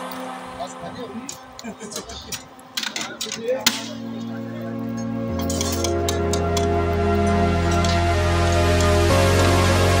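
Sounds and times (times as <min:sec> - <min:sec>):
background music of held chords: 0:03.6 - 0:10.0.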